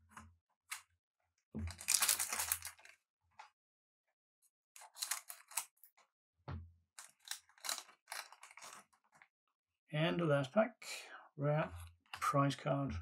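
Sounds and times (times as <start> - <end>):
foil pack crinkling and tearing: 1.7 - 2.9, 7.0 - 8.9.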